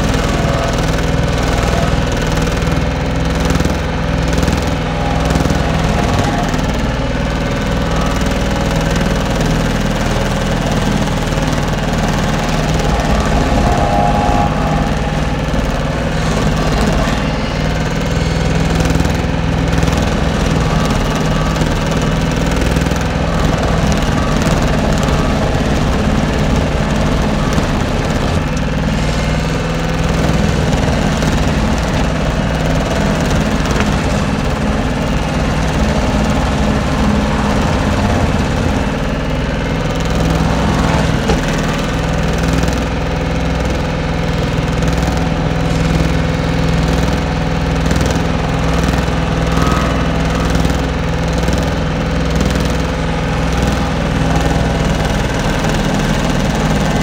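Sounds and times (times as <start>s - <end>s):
diesel engine running under load: 0.0s - 57.0s
grinder disc cutting wood: 0.0s - 57.0s.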